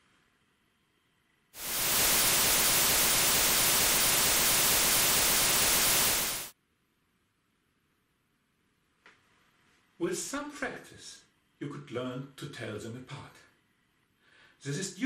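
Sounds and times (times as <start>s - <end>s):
white noise: 0.0s - 6.6s.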